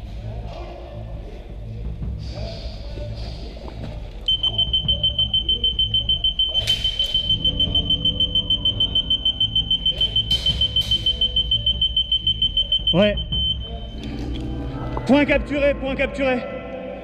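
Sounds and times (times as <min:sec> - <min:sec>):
rapid high electronic beeping: 0:04.3 - 0:14.0.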